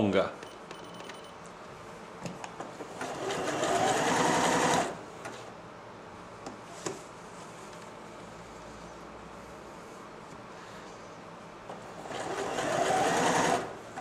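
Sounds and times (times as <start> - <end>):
sewing machine stitching: 2.8 - 5.0, 11.7 - 14.0.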